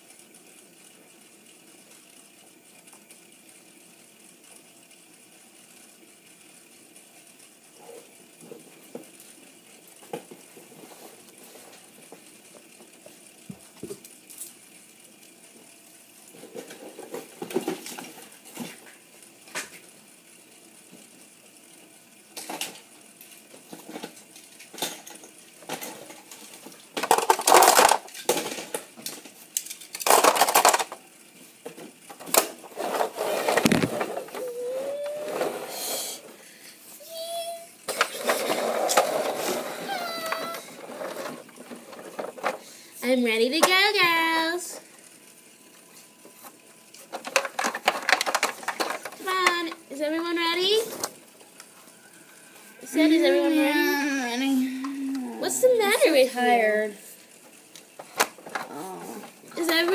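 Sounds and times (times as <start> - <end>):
toys rattling and scraping: 9.9 - 13.3, 16.2 - 18.9, 22.4 - 36.4, 37.9 - 44.9, 46.4 - 52.1, 55.4 - 59.9
plastic toys clicking and knocking: 22.3 - 31.0, 31.6 - 35.7, 37.9 - 42.7, 46.4 - 49.9, 57.8 - 59.9.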